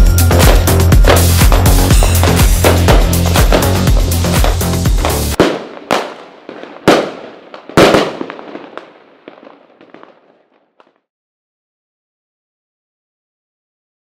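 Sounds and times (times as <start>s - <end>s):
fireworks bangs: 0.3s - 11.0s
fireworks pops and crackles: 0.4s - 11.1s.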